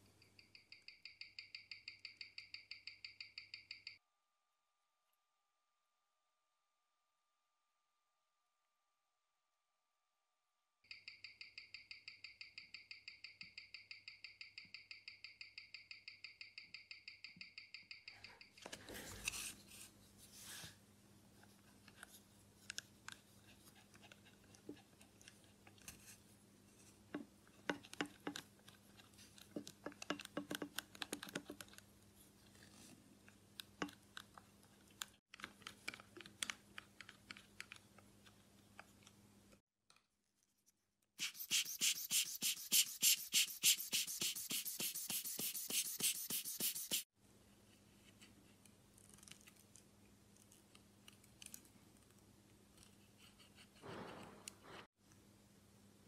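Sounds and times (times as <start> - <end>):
cleaning tool scratching watch dial: 41.2 - 47.0.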